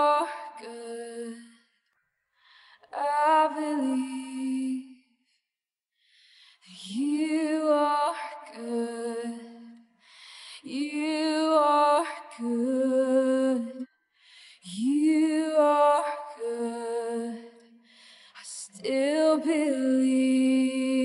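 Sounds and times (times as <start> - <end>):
person singing wordless melody: 2.8 - 5.0, 10.6 - 13.9.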